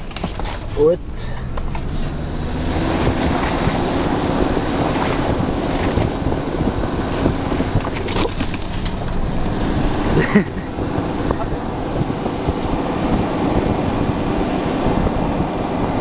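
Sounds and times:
body knocks and rattles: 0.0s - 3.9s, 7.1s - 10.6s
vehicle engine under load: 0.0s - 16.0s.

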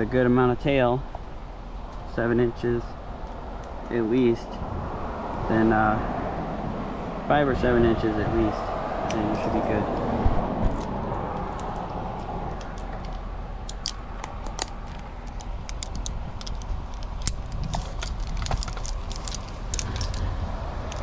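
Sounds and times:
low steady rumble: 0.0s - 21.0s
metal climbing hardware clinking: 10.6s - 21.0s.

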